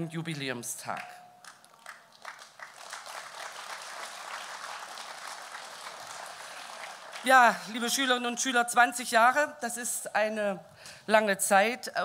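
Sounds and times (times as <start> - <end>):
audience applauding: 1.4 - 7.7.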